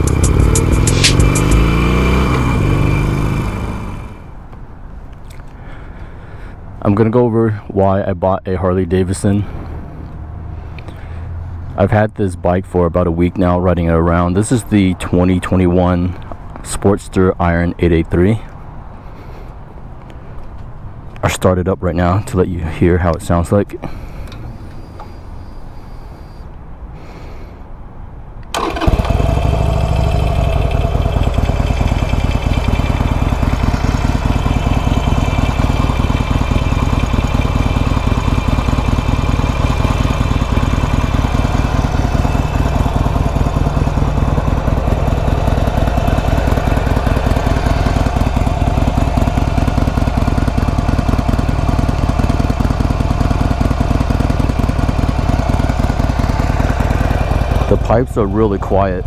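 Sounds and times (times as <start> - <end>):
motorcycle engine starting and idling: 0.0 - 6.5, 28.4 - 59.0.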